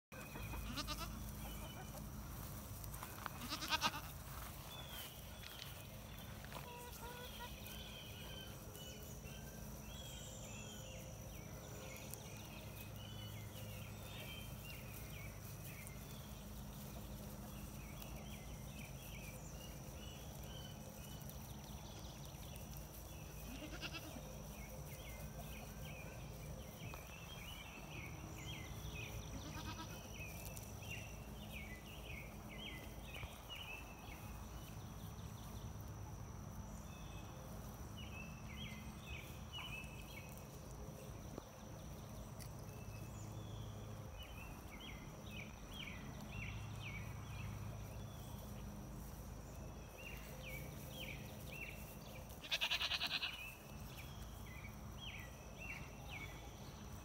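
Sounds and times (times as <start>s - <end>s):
birds chirping: 0.1s - 35.8s, 36.6s - 57.0s
goats bleating: 0.3s - 1.3s, 3.3s - 4.2s, 23.5s - 24.2s, 29.4s - 30.0s, 52.4s - 53.4s.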